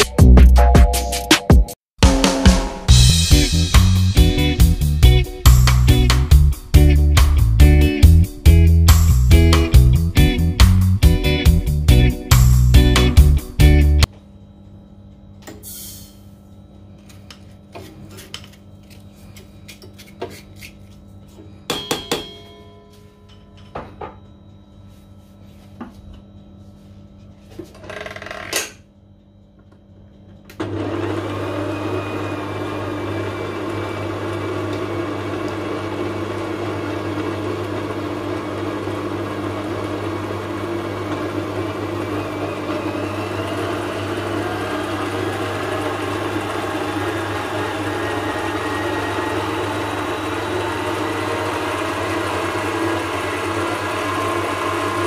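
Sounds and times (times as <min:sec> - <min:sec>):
stand mixer motor humming: 0:30.6 - 0:55.0.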